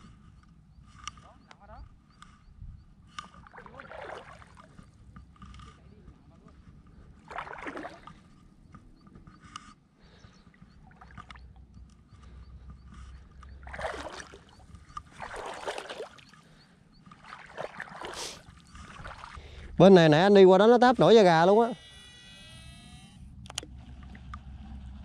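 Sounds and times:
wind rumble on microphone: 0:01.6 - 0:03.8
water splashing in shallows: 0:03.2 - 0:05.0, 0:07.0 - 0:08.5, 0:13.4 - 0:19.7.

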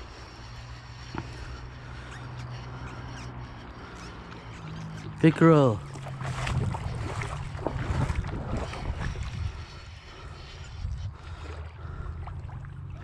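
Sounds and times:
wind buffeting microphone: 0:05.9 - 0:13.0.

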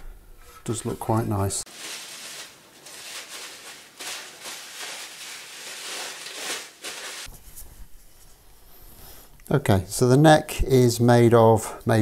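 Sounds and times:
bubble wrap crinkling: 0:01.7 - 0:07.6.

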